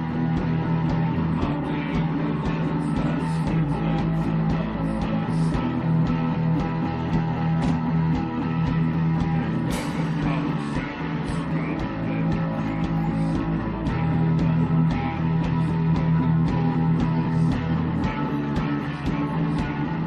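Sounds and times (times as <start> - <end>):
bass line: 0.0 - 20.0
drums: 0.0 - 20.0
electric guitars: 0.0 - 20.0
cymbal strikes: 9.7 - 10.3.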